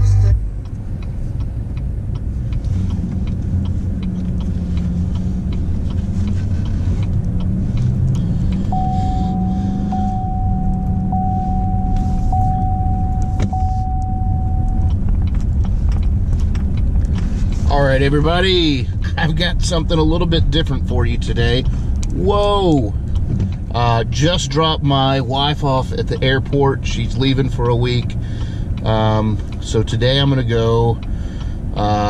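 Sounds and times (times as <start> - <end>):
truck engine low rumble: 0.0 - 32.0
electronic warning chime: 8.7 - 14.9.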